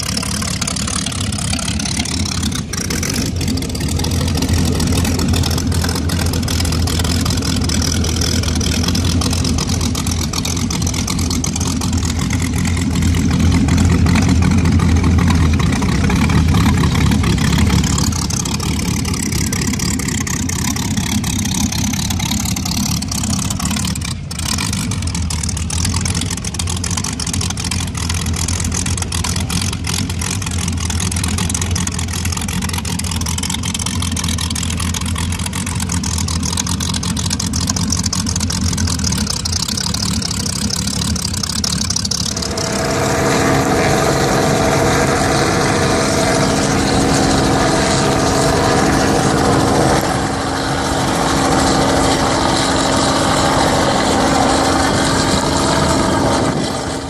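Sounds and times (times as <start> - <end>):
engine drone with held tones: 0.0 - 57.0
powerboat engines idling: 0.0 - 57.0.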